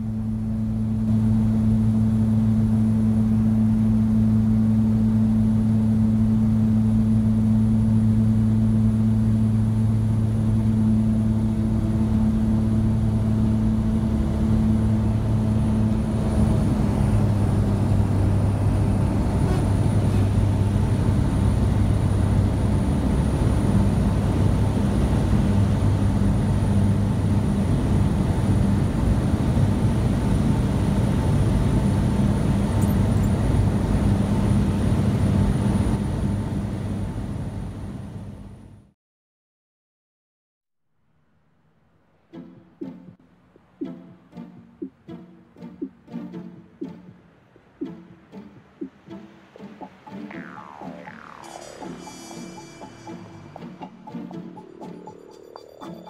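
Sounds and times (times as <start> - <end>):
floatplane engine and propeller: 0.0 - 38.9, 47.8 - 55.2
rushing noise: 42.2 - 56.0.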